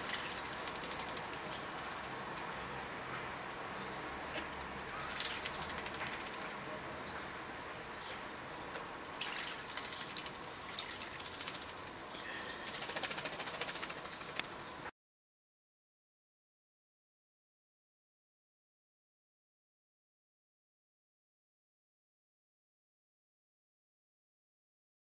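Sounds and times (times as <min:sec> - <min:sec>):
bird wings fluttering and splashing: 0:00.0 - 0:02.6, 0:04.3 - 0:06.6, 0:08.8 - 0:12.0, 0:12.6 - 0:14.8
birds chirping: 0:00.0 - 0:14.8.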